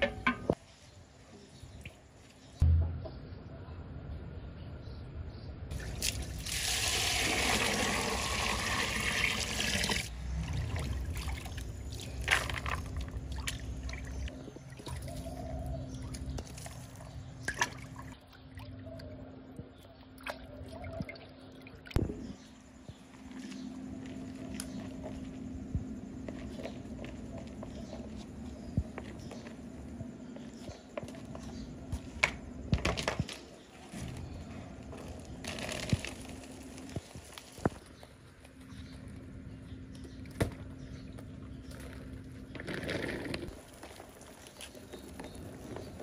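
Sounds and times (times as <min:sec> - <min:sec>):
water pouring and sloshing: 0:05.7 - 0:22.2.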